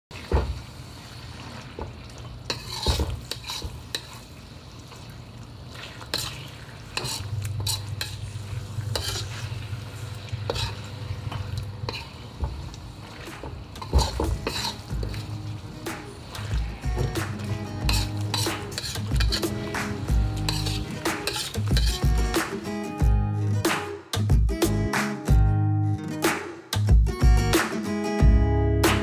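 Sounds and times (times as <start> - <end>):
low sizzle: 0.1 - 23.6
spoon clinking and scraping pan: 2.5 - 4.2, 6.0 - 9.6, 10.4 - 12.3, 13.2 - 22.3.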